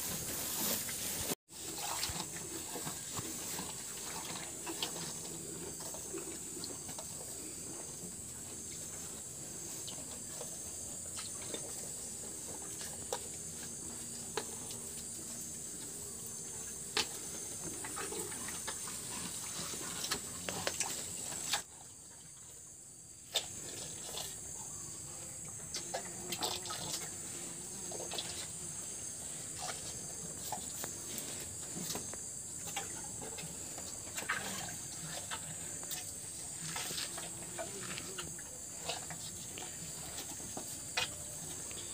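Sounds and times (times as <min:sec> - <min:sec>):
cattle sipping water: 0:00.0 - 0:16.0, 0:16.6 - 0:21.7, 0:29.4 - 0:41.9.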